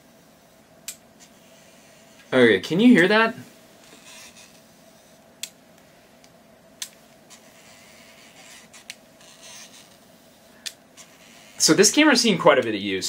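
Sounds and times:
camera lens motor whirring: 0:01.2 - 0:02.3, 0:03.8 - 0:05.2, 0:06.9 - 0:11.8.

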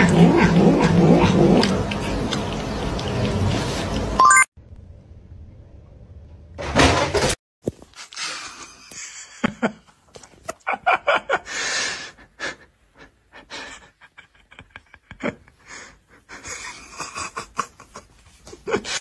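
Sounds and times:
person laughing breathlessly: 0:11.1 - 0:19.0.

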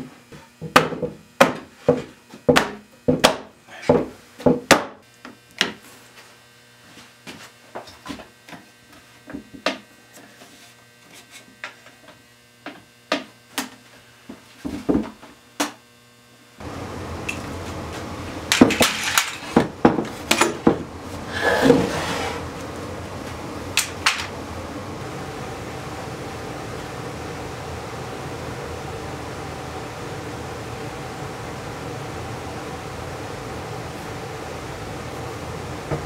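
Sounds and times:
low steady hum: 0:16.0 - 0:36.0.

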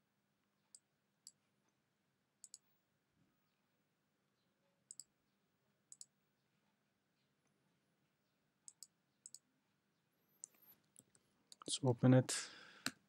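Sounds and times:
computer mouse clicking: 0:02.4 - 0:02.6, 0:04.9 - 0:05.1, 0:05.9 - 0:06.1, 0:08.7 - 0:09.4.

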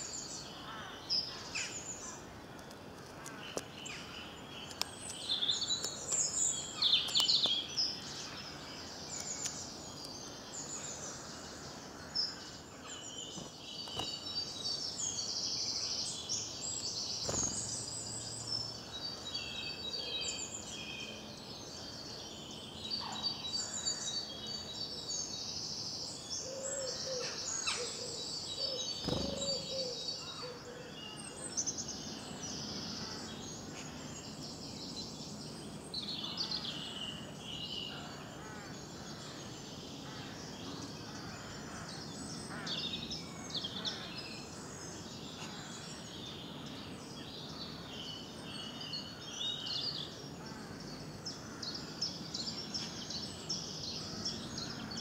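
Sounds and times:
songbirds singing: 0:00.0 - 0:55.0
lower repeated bird call: 0:26.6 - 0:30.6.

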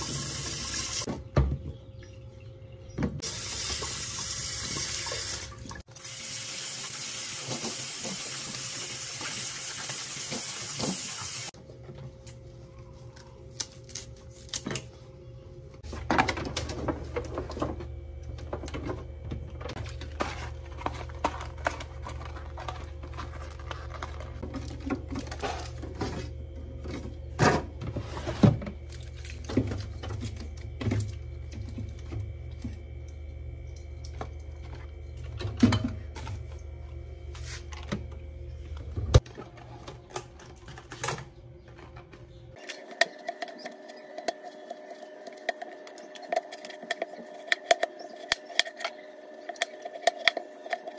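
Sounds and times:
low steady hum: 0:11.6 - 0:50.9
vegetables and drawers clicking: 0:15.8 - 0:31.0.

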